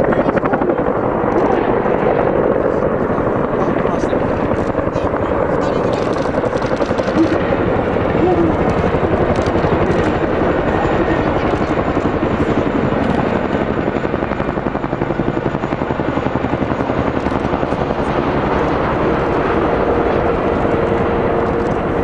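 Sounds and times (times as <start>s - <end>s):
helicopter rotor blades chopping: 0.0s - 22.0s.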